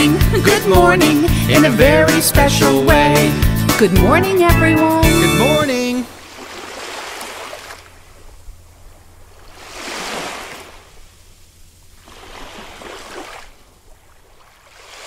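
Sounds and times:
ocean waves washing in: 5.7 - 15.0.

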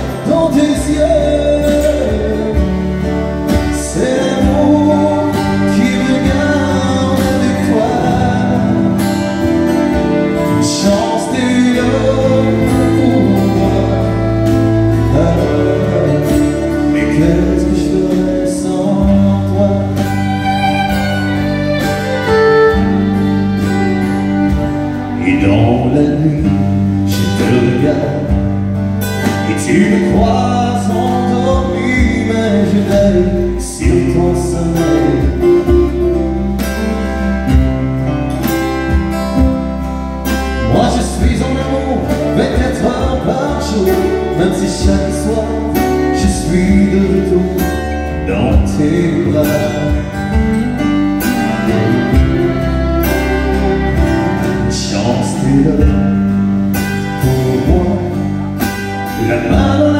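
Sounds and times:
fiddle playing: 0.0 - 26.3, 49.1 - 56.0
strummed acoustic guitar: 0.0 - 59.9.

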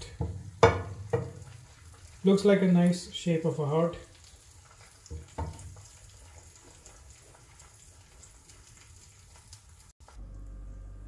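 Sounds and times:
light crackles: 0.0 - 10.9
eggs sizzling in a frying pan: 0.0 - 11.0
low steady hum: 10.0 - 11.0.

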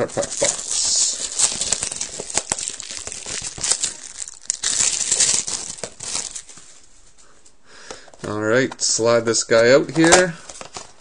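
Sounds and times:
plastic wrapping crinkling and tearing: 0.0 - 6.6.

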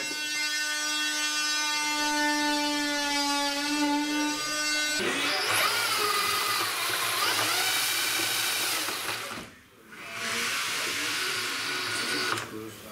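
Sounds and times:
cordless mixer motor whine: 4.1 - 12.5.

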